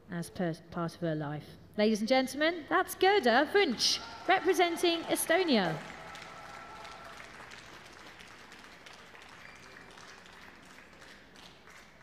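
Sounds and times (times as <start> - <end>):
faint audience applause: 3.9 - 12.0.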